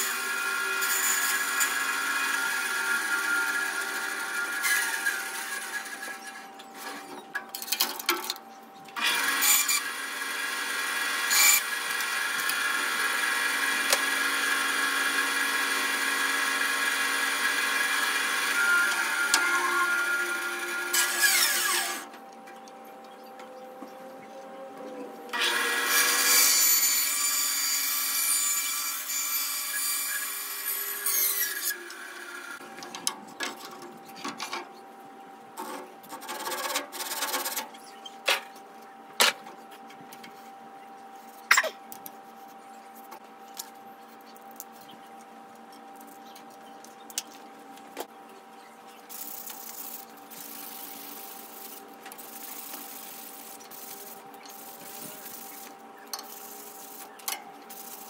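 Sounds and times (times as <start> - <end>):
bandsaw humming: 9.0 - 22.1
hand saw cutting wood: 9.0 - 22.1.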